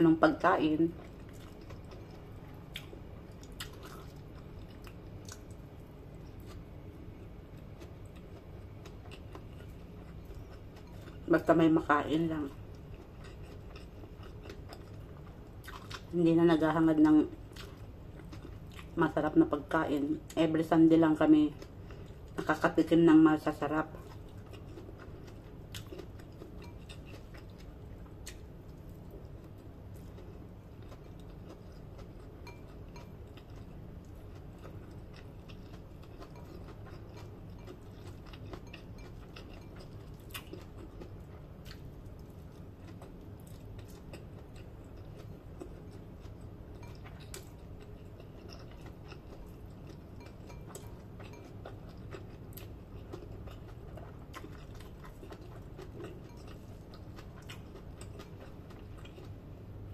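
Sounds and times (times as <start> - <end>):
low background hum: 0.0 - 59.9
chewing food: 0.6 - 59.9.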